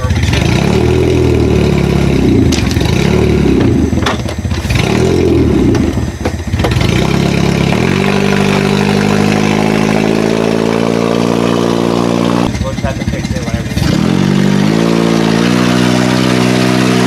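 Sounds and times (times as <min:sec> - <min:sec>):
engine knocks: 0:00.0 - 0:10.1, 0:12.4 - 0:14.6
car engine revving: 0:00.0 - 0:17.0
engine idling: 0:00.0 - 0:17.0.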